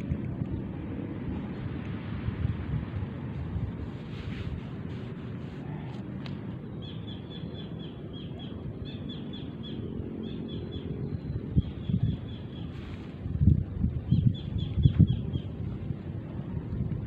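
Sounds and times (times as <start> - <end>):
wind rumble on microphone: 0.0 - 17.0
bird chirping: 6.6 - 12.8.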